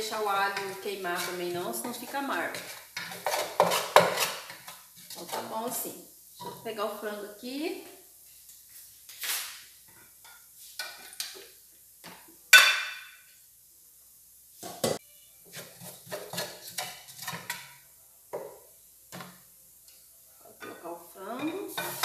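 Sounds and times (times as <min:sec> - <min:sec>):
wooden spoon stirring in pot: 0:00.0 - 0:06.9, 0:10.0 - 0:12.3, 0:14.6 - 0:17.8, 0:20.5 - 0:22.0
dishes and pots clattering: 0:00.6 - 0:05.1, 0:09.9 - 0:13.3, 0:14.6 - 0:17.8, 0:20.5 - 0:22.0.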